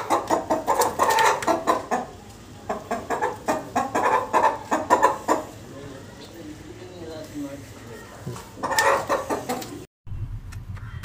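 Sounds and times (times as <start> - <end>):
chickens clucking: 0.0 - 9.9.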